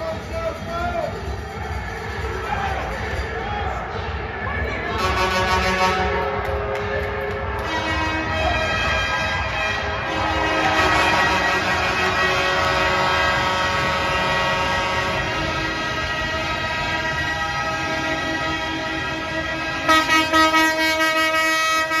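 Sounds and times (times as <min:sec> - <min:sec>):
horn chord blasts: 0:04.9 - 0:22.0.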